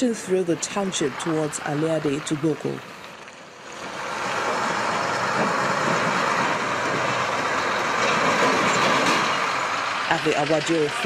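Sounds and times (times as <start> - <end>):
truck diesel engine running: 0.0 - 11.0.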